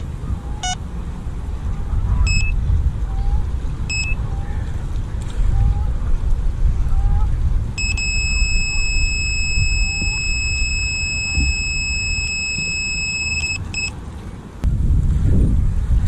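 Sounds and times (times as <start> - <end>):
wind rumble on microphone: 0.0 - 16.0
bite alarm beeping: 0.6 - 0.8, 2.3 - 2.6, 3.9 - 4.2, 7.8 - 14.0.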